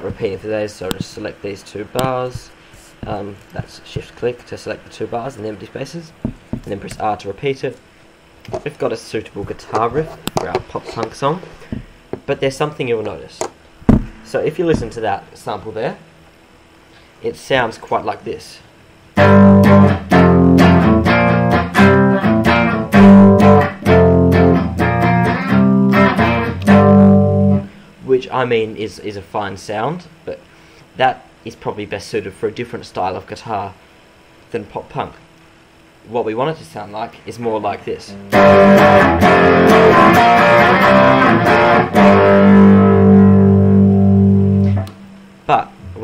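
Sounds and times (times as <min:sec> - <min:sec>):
clean electric guitar chords: 0:19.2 - 0:27.8, 0:38.1 - 0:46.0.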